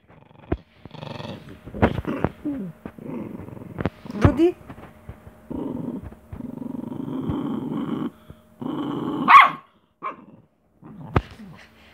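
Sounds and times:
small dog growling: 0.0s - 11.9s
dog barking sharply: 9.3s - 10.2s.

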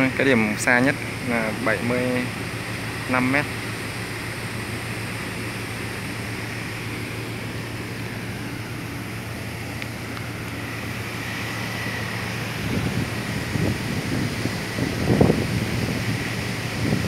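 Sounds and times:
low engine hum: 0.0s - 17.0s.

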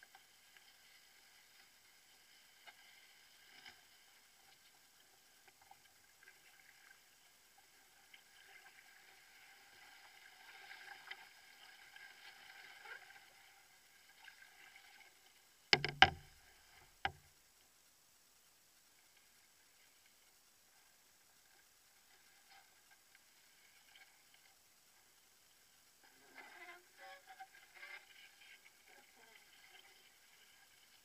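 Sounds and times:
knocks against canoe hull: 15.8s - 16.4s
water swishing: 19.3s - 31.0s.

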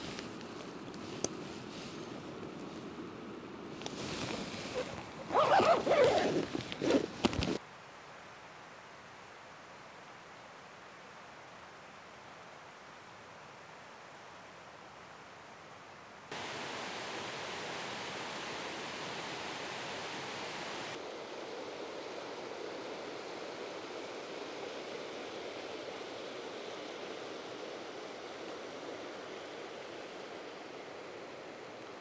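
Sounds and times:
river rushing over rocks: 16.3s - 32.0s.

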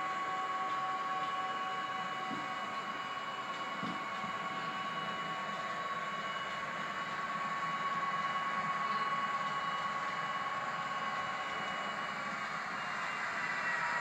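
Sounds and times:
model train drive whine: 0.0s - 14.0s.

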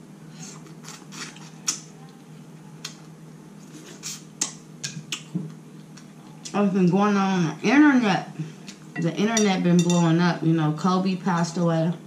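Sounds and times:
faint steady hum: 0.0s - 12.0s
wet chewing and lip-smacking: 4.0s - 6.4s.

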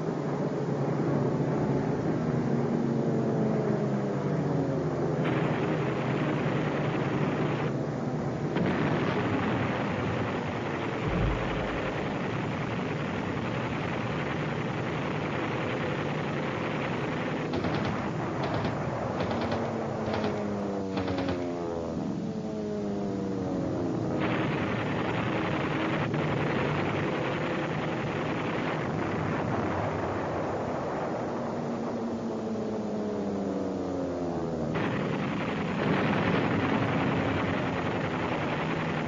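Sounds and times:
aircraft engines running: 0.0s - 39.0s
machine-gun fire: 10.6s - 21.9s
deep boom: 11.0s - 13.4s
combat noise: 11.1s - 12.6s.

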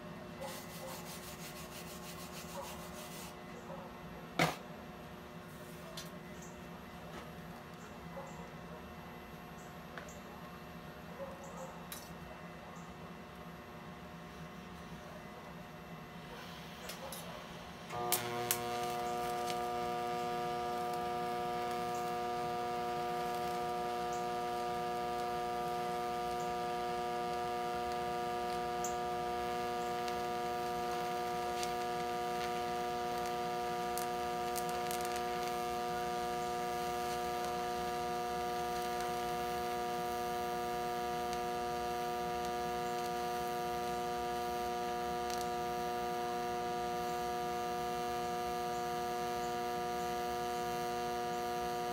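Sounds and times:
welding arc buzzing hum: 0.0s - 3.6s, 13.2s - 51.9s
welding arc crackles: 16.3s - 51.9s.

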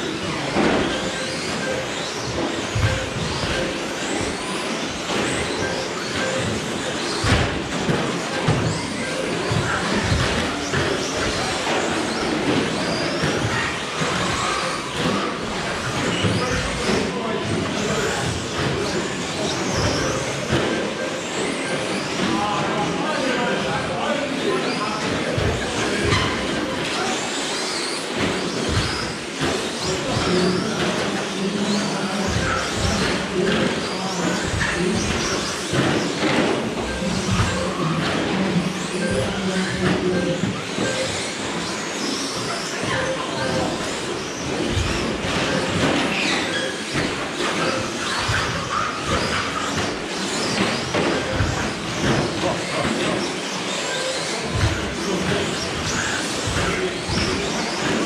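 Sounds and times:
electric motors whining: 0.0s - 58.0s
tyres and drivetrains noise: 0.0s - 58.0s
toy trucks knocking and clattering: 32.1s - 58.0s.

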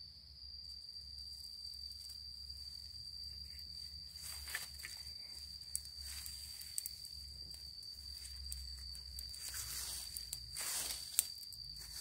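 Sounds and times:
high-pitched insect drone: 0.0s - 12.0s
dry leaves rustling: 3.4s - 12.0s
twig snapping: 4.5s - 7.0s, 8.2s - 12.0s.

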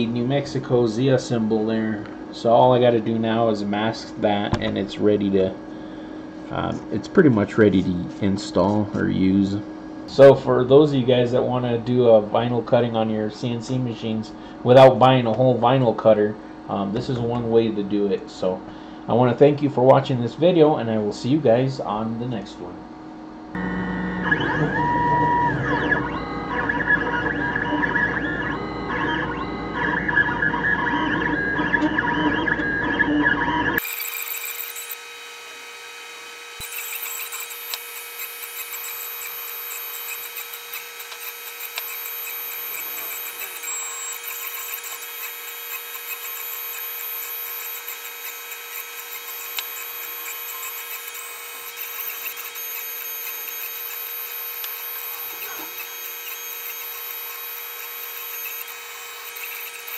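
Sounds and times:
cnc machine motors whining: 23.5s - 59.9s.

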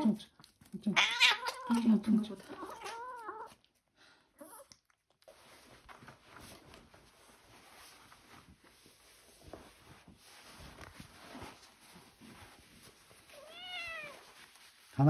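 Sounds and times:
cat meowing: 0.9s - 3.6s, 13.3s - 14.3s
faint clothing rustling: 5.3s - 15.0s.

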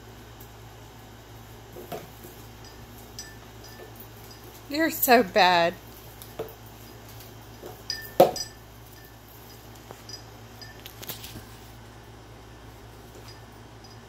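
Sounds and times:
rope swing clinks and knocks: 5.9s - 11.6s.

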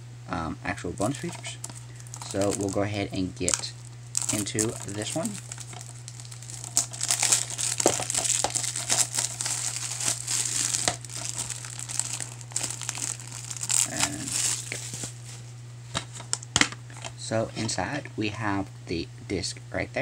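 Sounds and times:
steady low hum: 0.0s - 20.0s
plastic wrap crinkling: 1.0s - 15.4s.

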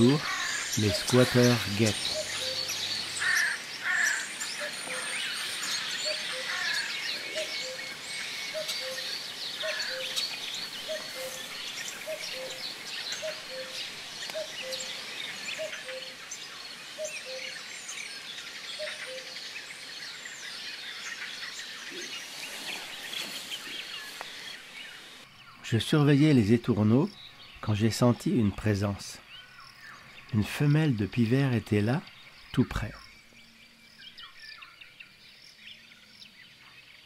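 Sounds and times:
starling singing: 0.0s - 16.4s.

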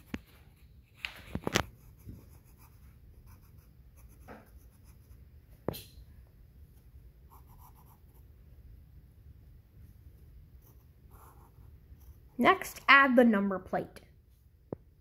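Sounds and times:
pencil scratching on paper: 0.0s - 5.2s, 7.3s - 8.3s, 10.6s - 12.4s.

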